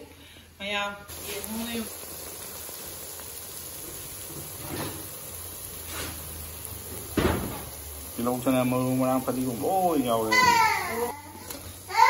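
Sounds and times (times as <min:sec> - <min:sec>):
food hissing in a pot: 0:00.0 - 0:12.0
thump: 0:07.1 - 0:07.7.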